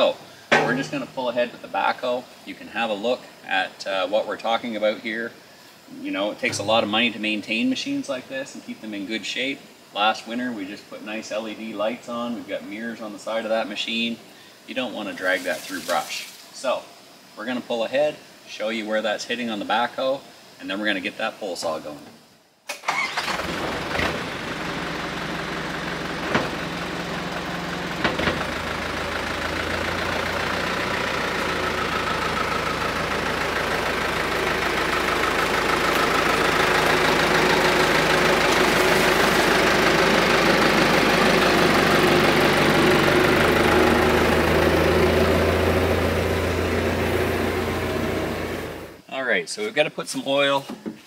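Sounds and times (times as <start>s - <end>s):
backhoe diesel engine running: 23.4s - 49.0s.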